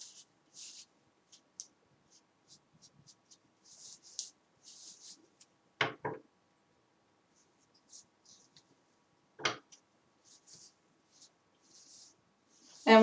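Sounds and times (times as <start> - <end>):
brush rubs and knocks: 0.0 - 5.5, 7.3 - 8.9, 9.6 - 13.0
hairbrush brushing hair: 11.7 - 13.0.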